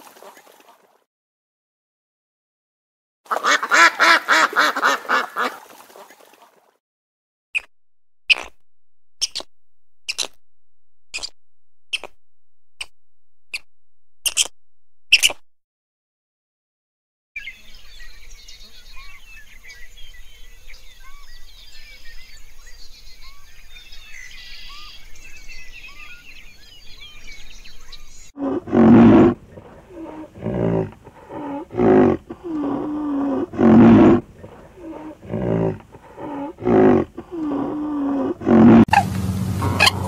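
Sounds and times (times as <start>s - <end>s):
small birds chirping: 8.3s - 8.6s, 9.2s - 10.4s, 11.1s - 12.2s, 13.5s - 14.5s, 15.1s - 15.4s, 17.4s - 28.4s
deep animal calls: 28.4s - 40.0s.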